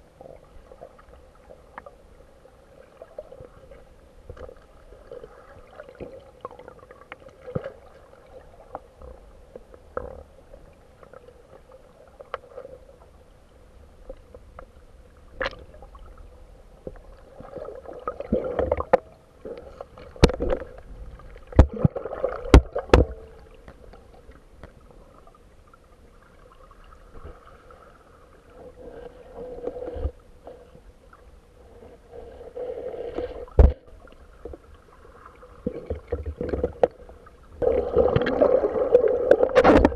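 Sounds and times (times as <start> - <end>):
underwater sloshing and gurgling: 0.0 - 39.9.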